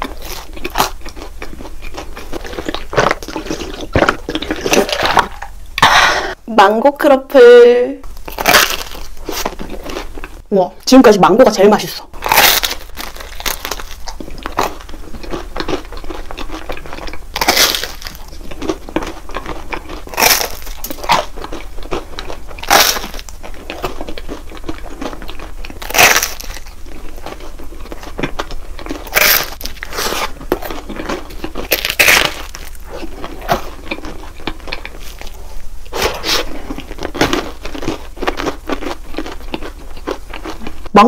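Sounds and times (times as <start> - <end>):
soft chewing and crackling: 0.0 - 5.9, 8.0 - 10.9, 11.8 - 41.0
loud crisp crunch: 8.1 - 10.4, 12.2 - 40.9.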